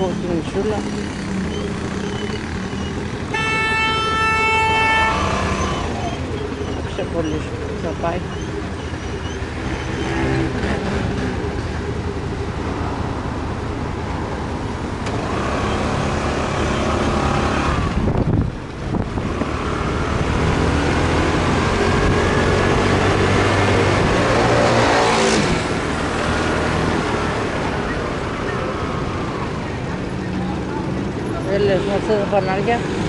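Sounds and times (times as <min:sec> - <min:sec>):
motorbike engine: 0:00.0 - 0:03.4.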